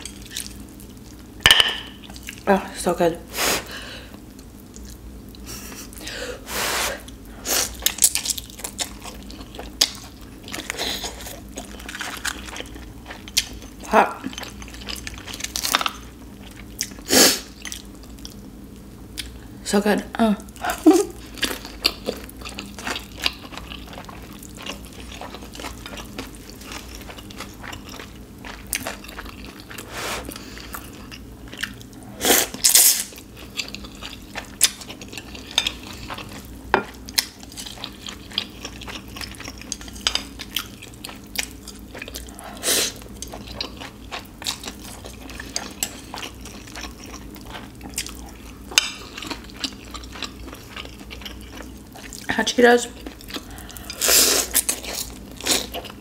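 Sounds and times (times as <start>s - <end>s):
chewing and slurping noodles: 21.2s - 52.3s.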